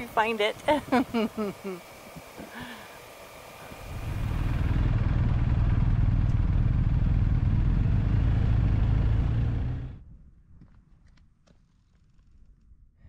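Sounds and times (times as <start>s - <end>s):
motorcycle engine drone: 0.0s - 10.4s
wind and road noise: 0.0s - 12.8s.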